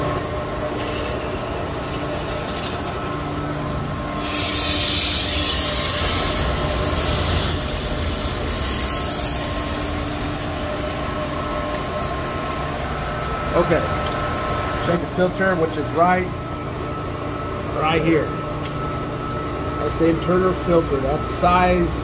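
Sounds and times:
machinery hum: 0.0 - 22.0
pressure release hiss: 4.1 - 9.6.

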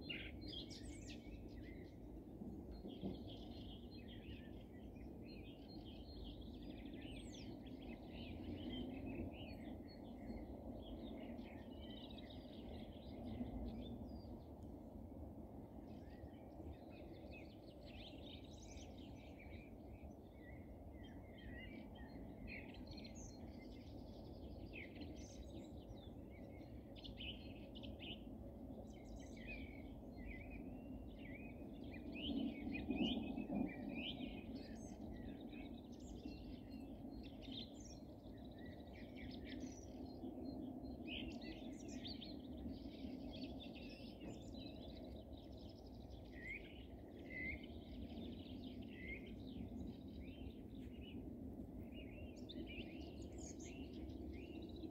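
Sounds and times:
songbirds chirping and singing: 0.0 - 14.7, 15.6 - 54.9
low background rumble: 32.8 - 54.9.

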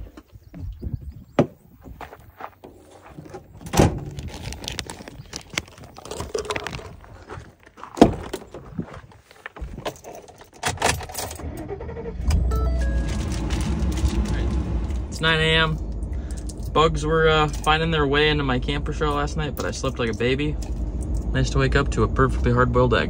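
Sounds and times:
low steady rumble: 11.3 - 23.0
keys jangling: 16.2 - 16.8.

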